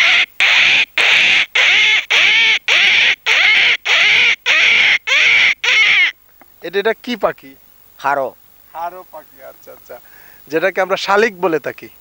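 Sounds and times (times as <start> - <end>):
man imitating bird calls: 0.0 - 6.1.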